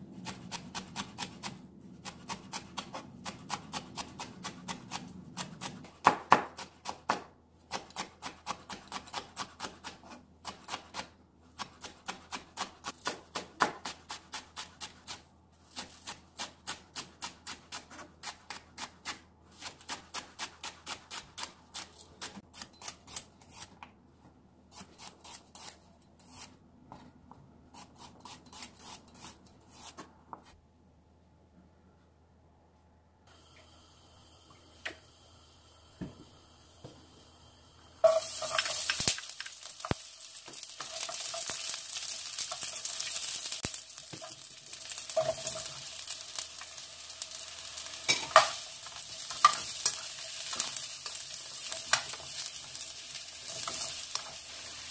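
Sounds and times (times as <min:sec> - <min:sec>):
knife chopping on wooden board: 0:05.6 - 0:10.0.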